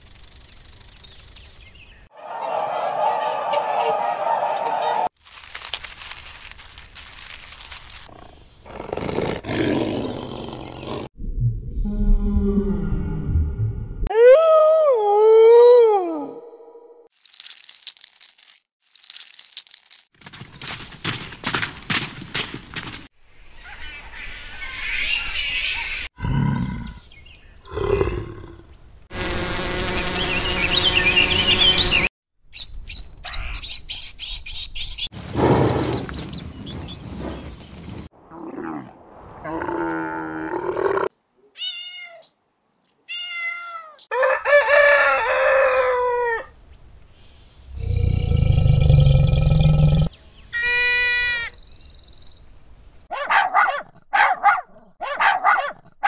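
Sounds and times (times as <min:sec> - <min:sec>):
camel calling: 0:50.6 - 0:51.5.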